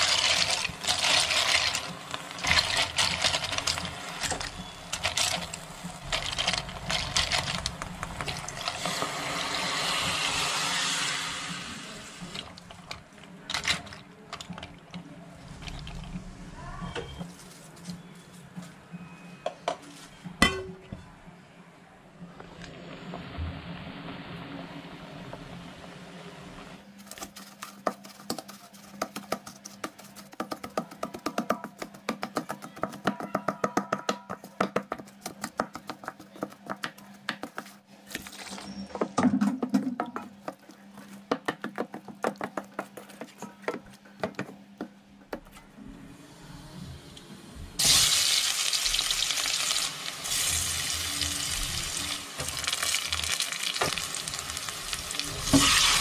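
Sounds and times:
shallots sizzling in oil: 0.0s - 12.4s, 47.8s - 56.0s
water boiling: 0.0s - 16.3s, 22.2s - 26.8s, 47.8s - 56.0s.

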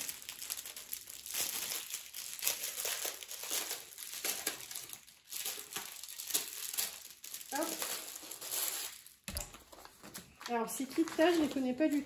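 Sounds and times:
packaging crinkling and rustling: 0.0s - 12.0s.

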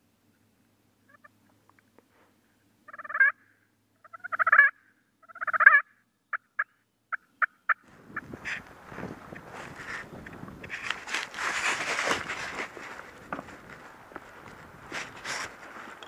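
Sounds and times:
turkey gobbling: 2.9s - 8.7s.

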